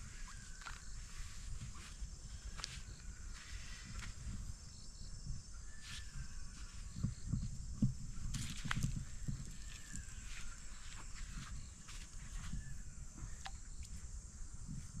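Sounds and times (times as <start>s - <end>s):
footsteps and handling rustles: 7.8s - 12.6s.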